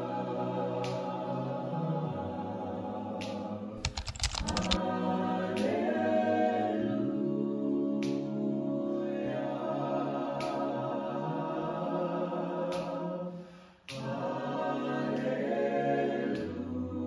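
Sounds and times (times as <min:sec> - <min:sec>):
choir singing a cappella: 0:00.0 - 0:03.8, 0:04.7 - 0:17.0
quick clicks: 0:03.8 - 0:04.8.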